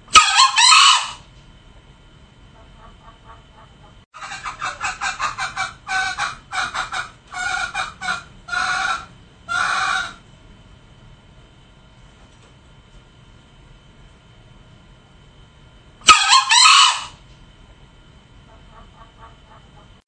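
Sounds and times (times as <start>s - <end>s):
junglefowl clucking and calling: 0.1s - 1.2s, 2.6s - 10.2s, 16.0s - 17.2s, 18.5s - 20.0s.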